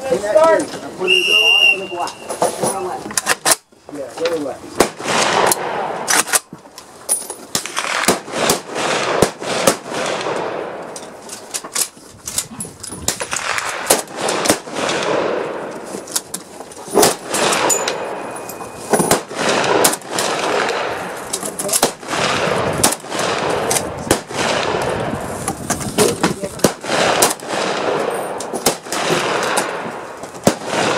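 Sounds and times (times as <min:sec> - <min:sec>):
rifle shots echoing: 0:04.8 - 0:06.5, 0:07.5 - 0:11.0, 0:13.1 - 0:15.9, 0:17.0 - 0:25.4, 0:26.5 - 0:30.9.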